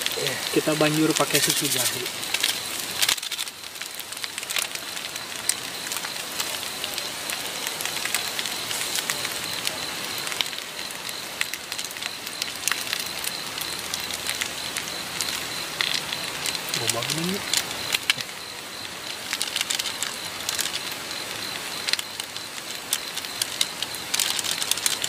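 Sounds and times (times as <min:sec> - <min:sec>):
food sizzling and bubbling: 0:00.0 - 0:25.0
thin high tone: 0:08.2 - 0:18.8.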